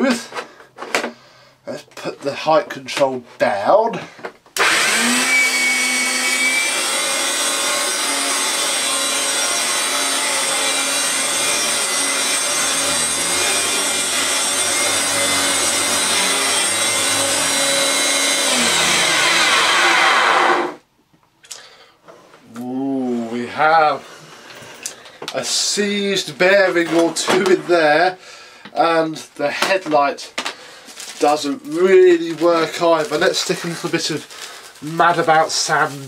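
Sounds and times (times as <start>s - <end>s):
vacuum cleaner motor running: 4.6s - 20.8s.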